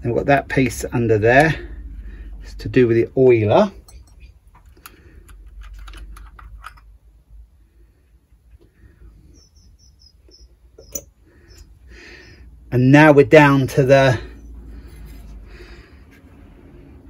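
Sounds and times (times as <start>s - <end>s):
small parts clicking on bench: 3.9s - 6.9s
bird chirping: 8.9s - 12.5s.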